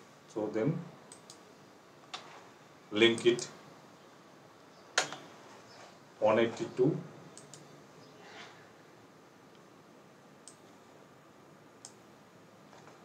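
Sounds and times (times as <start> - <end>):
computer mouse and key clicks: 1.1 - 1.4, 7.3 - 7.7, 10.4 - 10.7, 11.8 - 12.0.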